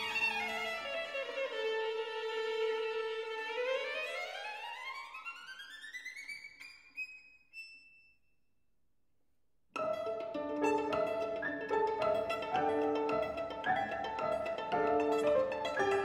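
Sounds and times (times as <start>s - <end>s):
violin glissando: 9.8s - 16.0s.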